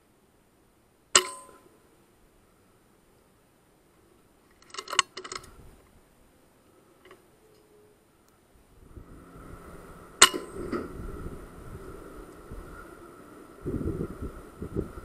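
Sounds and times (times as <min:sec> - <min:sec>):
metallic ring: 0:01.2 - 0:01.8, 0:10.2 - 0:11.0.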